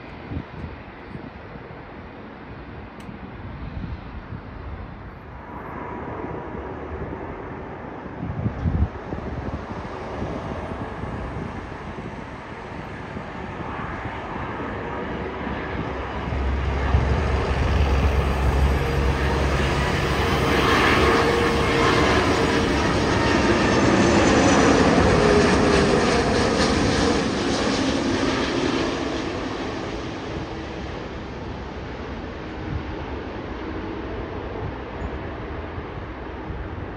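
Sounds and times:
jet engines overhead: 0:00.0 - 0:36.9.

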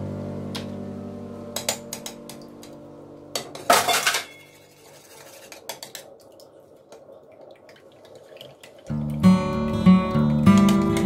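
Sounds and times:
metal utensil scraping a bowl: 0:04.4 - 0:06.0.

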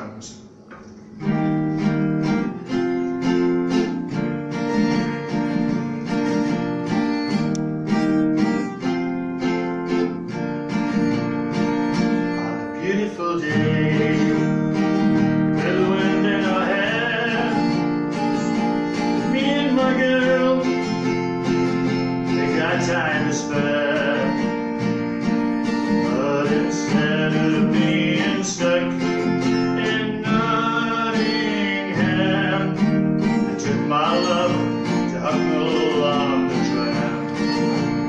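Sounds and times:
acoustic guitar strumming: 0:00.0 - 0:38.0
man singing: 0:12.6 - 0:21.3, 0:21.9 - 0:24.8, 0:25.8 - 0:38.0.

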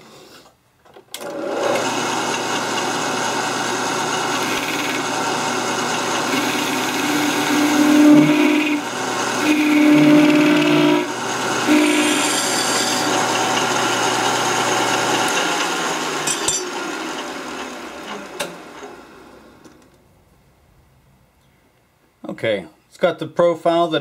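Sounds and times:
metal lathe whining: 0:01.2 - 0:19.6
humming tone of cutting tool: 0:01.5 - 0:18.6.

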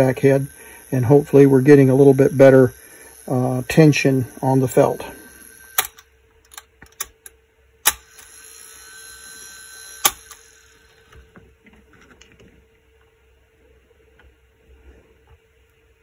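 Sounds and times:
tape transport running: 0:00.0 - 0:12.4
sharp mechanical clicks: 0:05.7 - 0:08.4, 0:10.0 - 0:10.5.

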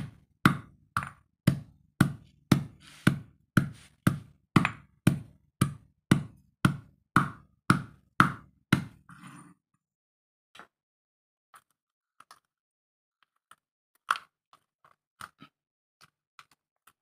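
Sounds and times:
pestle pounding in stone mortar: 0:00.0 - 0:09.0.

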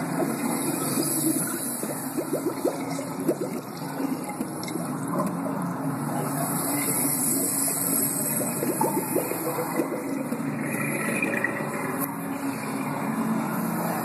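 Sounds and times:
water gurgling down a drain: 0:00.0 - 0:14.0.

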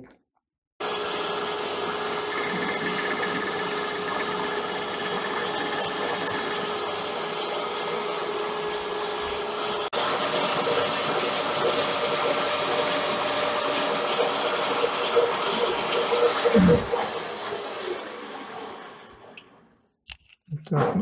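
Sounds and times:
metal lathe humming: 0:02.1 - 0:07.1, 0:10.0 - 0:14.5
high-pitched cutting rattle: 0:02.3 - 0:06.8, 0:10.0 - 0:13.8.

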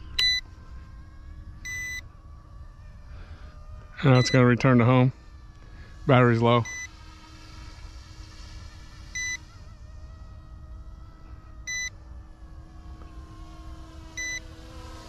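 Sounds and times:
distant helicopter motor whine: 0:00.0 - 0:15.0
short high alarm beeps: 0:00.2 - 0:00.4, 0:01.7 - 0:02.0, 0:04.1 - 0:04.5, 0:06.6 - 0:06.9, 0:09.2 - 0:09.4, 0:11.7 - 0:11.9.

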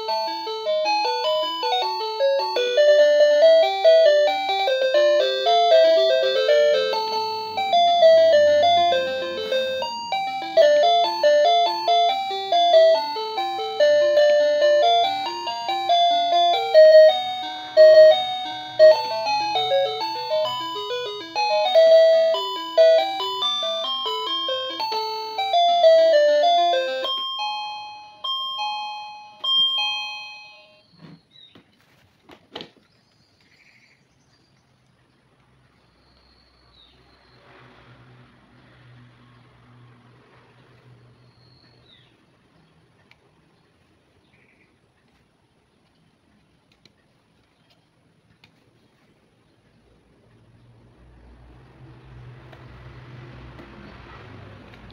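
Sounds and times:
electronic doorbell chime melody: 0:00.0 - 0:31.0.

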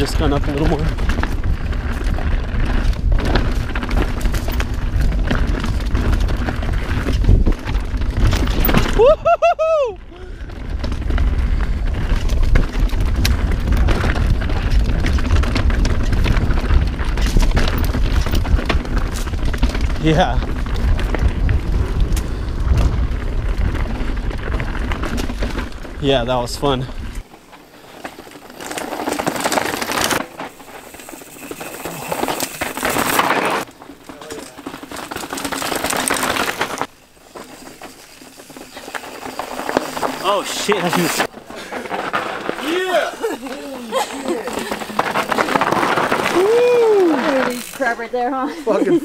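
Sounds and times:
bike rattling: 0:00.0 - 0:49.0
tyres on loose dirt and rocks: 0:00.0 - 0:49.0
wind buffeting microphone: 0:10.1 - 0:27.2.

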